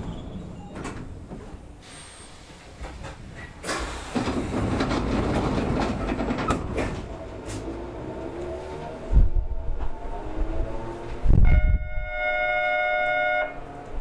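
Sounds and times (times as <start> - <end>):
train wheels clattering on track: 0.0 - 8.4.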